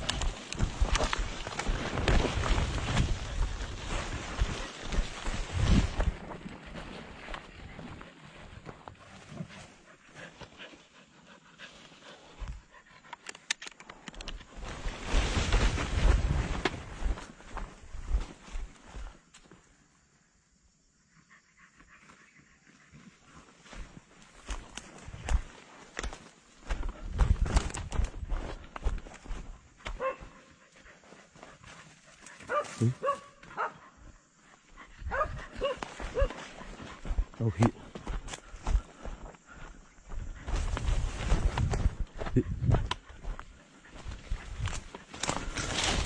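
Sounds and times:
low rumble of wind on microphone: 0.0s - 7.9s, 14.8s - 18.2s, 34.9s - 36.2s, 40.0s - 46.0s
leaves and branches rustling: 0.0s - 12.8s, 13.9s - 19.4s, 23.3s - 33.7s, 34.3s - 46.0s
sharp clicks: 13.1s - 14.4s
dog barking: 30.0s - 30.4s, 32.4s - 33.9s, 35.1s - 36.4s.

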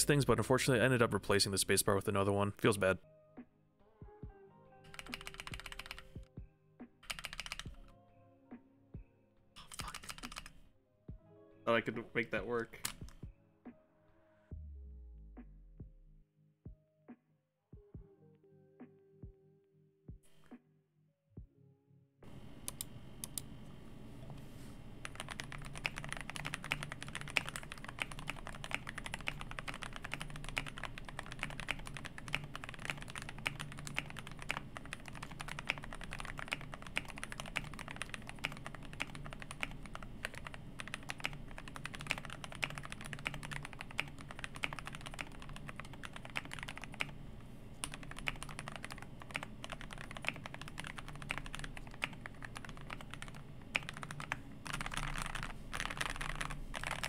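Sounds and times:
mechanical keyboard typing: 4.9s - 6.1s, 7.0s - 7.8s, 9.6s - 10.5s, 25.0s - 47.2s, 47.8s - 57.0s.

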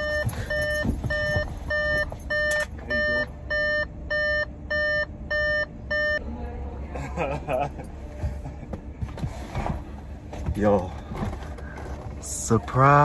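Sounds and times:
car door warning chime beeping: 0.0s - 6.2s
low steady rumble: 0.0s - 13.0s.

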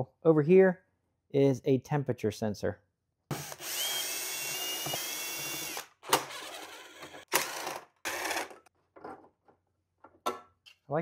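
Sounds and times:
cordless drill whining: 3.3s - 8.5s.

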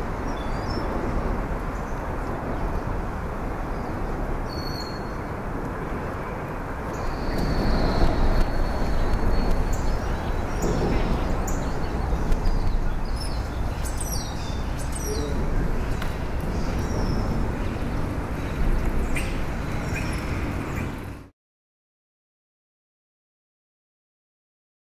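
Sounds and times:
low outdoor rumble: 0.0s - 21.3s
songbirds chirping: 6.6s - 21.2s.

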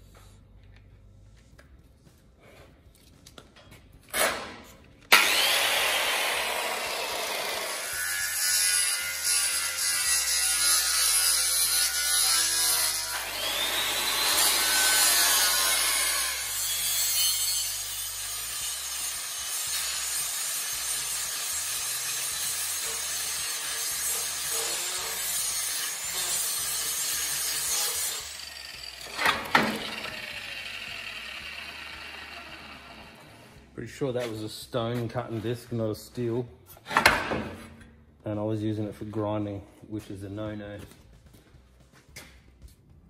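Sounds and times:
motor winding down: 5.1s - 7.7s, 29.0s - 33.4s
angle grinder grinding steel: 5.1s - 33.6s.

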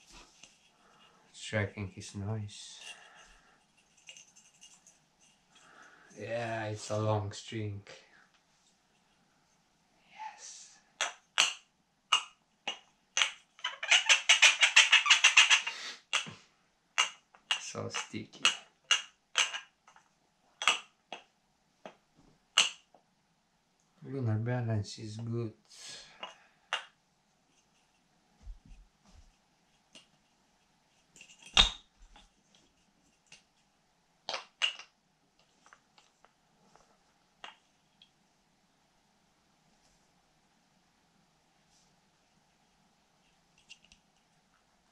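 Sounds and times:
wooden ball knocking on wood: 11.0s - 13.4s, 17.0s - 20.0s, 20.6s - 22.0s, 22.6s - 22.9s.

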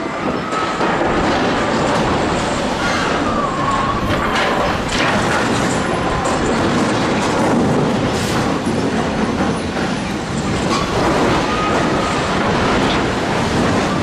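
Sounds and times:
faint squeal: 2.8s - 4.7s.

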